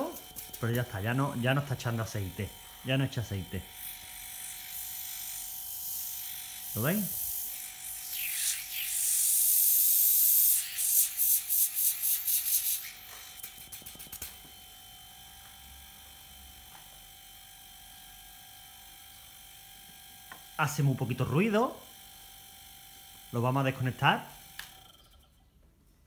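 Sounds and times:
fridge compressor humming: 0.0 - 10.4
air hissing from tube: 6.9 - 14.3.

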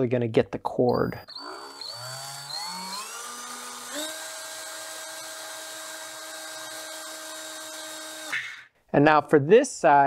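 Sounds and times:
electric drill motor whine: 1.3 - 8.6.

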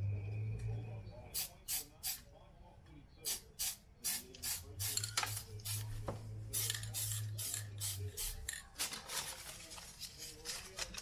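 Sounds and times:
low steady hum: 0.0 - 1.4.

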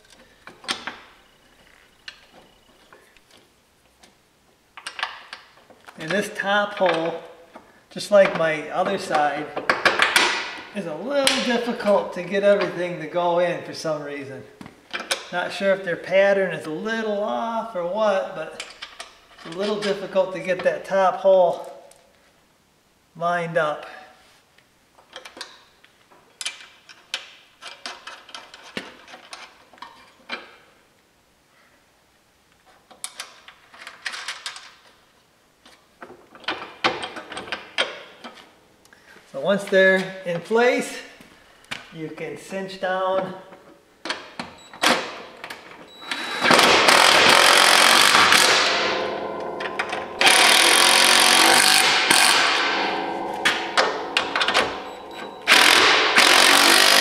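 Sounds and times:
impact driver hammering: 46.4 - 57.0
sharp metal knock: 46.9 - 57.0.

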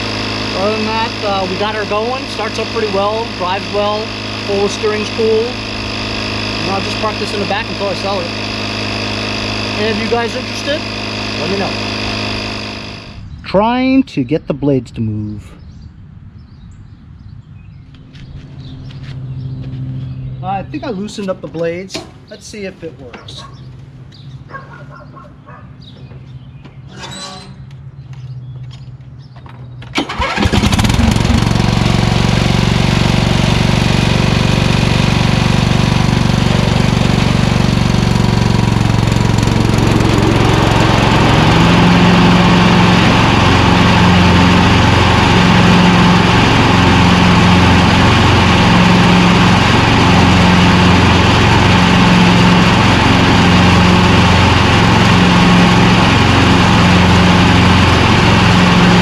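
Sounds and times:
lawn tractor engine running: 0.0 - 13.7, 29.8 - 59.0.

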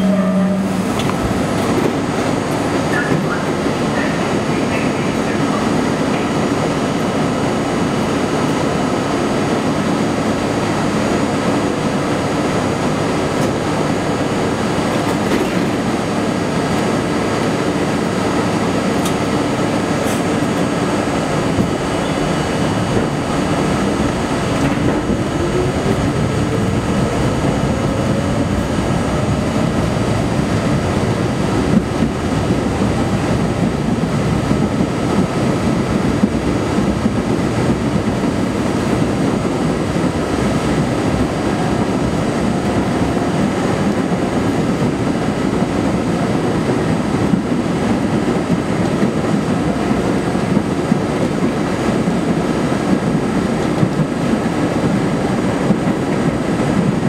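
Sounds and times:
subway car running hum: 0.0 - 57.0.

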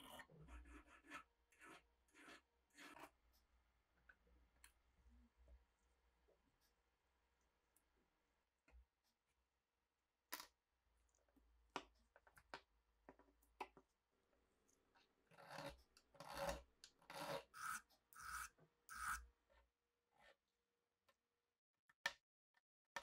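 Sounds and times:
hand file rasping on metal: 15.3 - 19.2.

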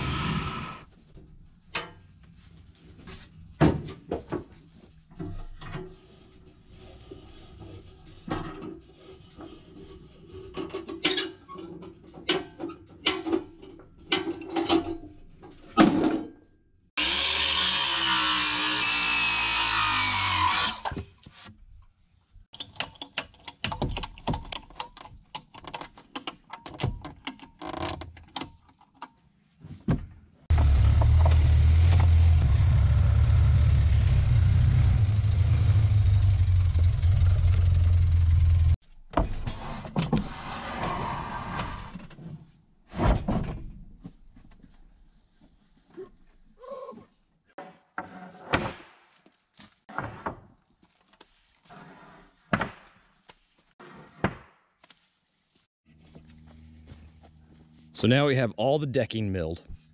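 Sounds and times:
power tool whining: 17.0 - 21.0
large engine running: 30.5 - 38.8.

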